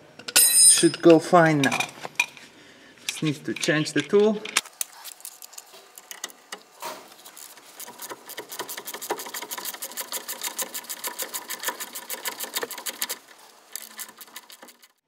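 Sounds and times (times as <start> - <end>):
ratchet wrench clicking: 7.4 - 13.2.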